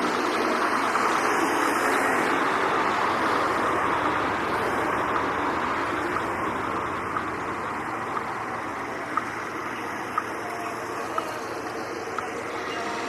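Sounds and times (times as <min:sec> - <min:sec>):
traffic noise: 0:00.0 - 0:13.0
faint ticking: 0:02.7 - 0:13.0.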